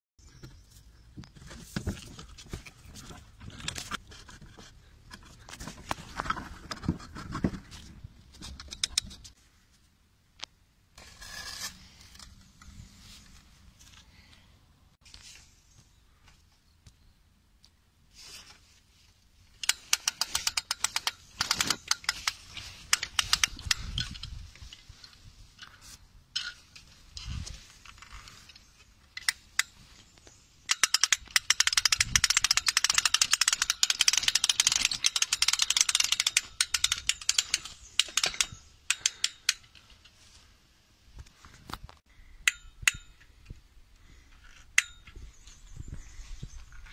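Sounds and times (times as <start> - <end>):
hand crank clicking rapidly: 19.6 - 24.3, 30.7 - 39.7.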